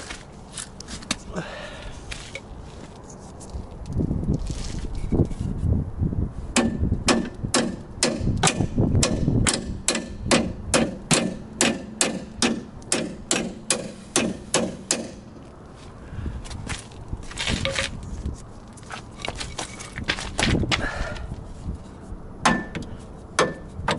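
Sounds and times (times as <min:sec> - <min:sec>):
hammer striking metal: 0:06.6 - 0:15.2, 0:22.4 - 0:23.9.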